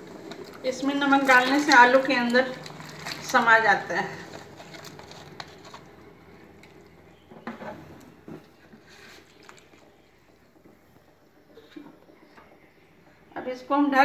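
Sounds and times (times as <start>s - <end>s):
water sloshing in a pot: 0.0s - 7.1s, 8.1s - 11.4s.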